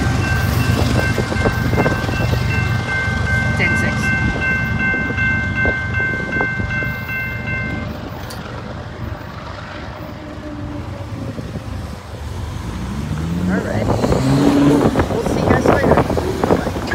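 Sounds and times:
crossing warning bell ringing: 0:00.0 - 0:08.6
freight train rumble: 0:00.0 - 0:16.9.

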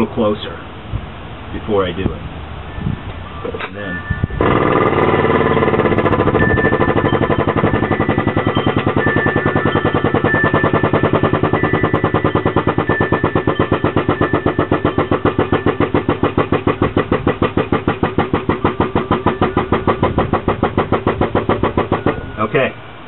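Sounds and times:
hydraulic pump chattering: 0:04.3 - 0:22.7.

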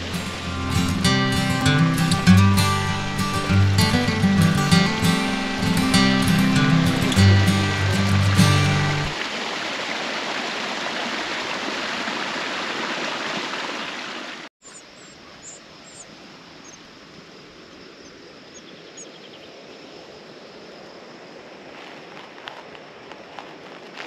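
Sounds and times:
rushing water: 0:00.0 - 0:14.5
outdoor ambience: 0:00.0 - 0:24.0
high bird chirps: 0:14.6 - 0:16.1.

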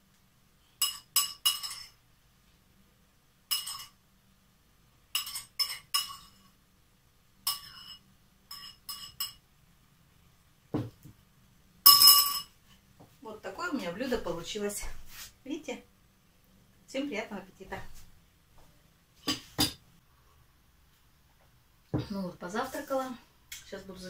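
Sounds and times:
spoon clinking ceramic bowl: 0:00.8 - 0:02.0, 0:03.5 - 0:04.0, 0:05.2 - 0:06.4, 0:07.5 - 0:09.4.

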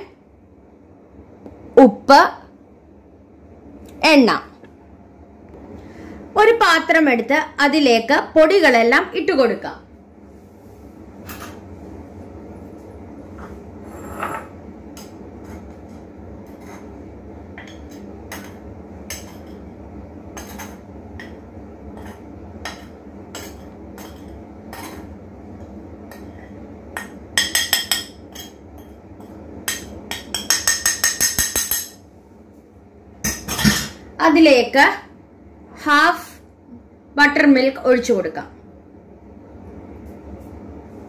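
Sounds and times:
metal spoon clinking on dishes: 0:13.9 - 0:14.5, 0:29.7 - 0:32.0.

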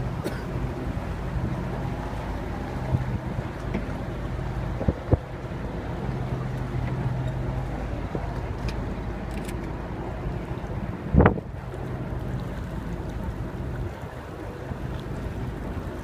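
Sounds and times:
boat engine running: 0:00.0 - 0:16.0
wind noise on microphone: 0:04.6 - 0:05.9, 0:10.8 - 0:12.0.

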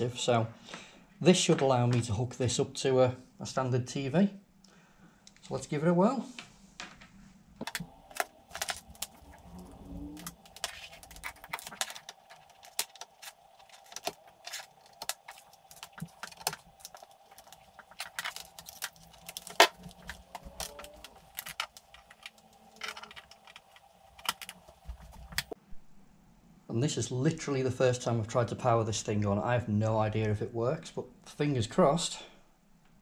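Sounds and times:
cable connectors clicking and rattling: 0:07.6 - 0:25.6.

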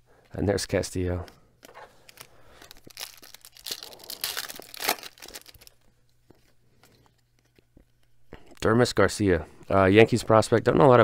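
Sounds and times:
cards rustling: 0:01.2 - 0:08.8
foil wrapper tearing and crinkling: 0:02.0 - 0:05.8.

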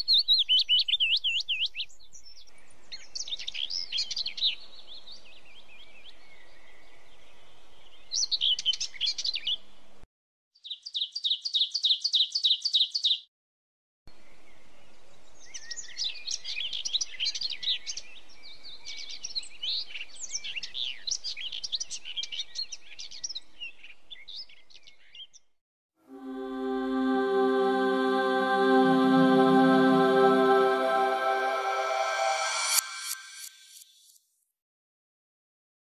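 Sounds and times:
small birds chirping: 0:10.6 - 0:13.2.

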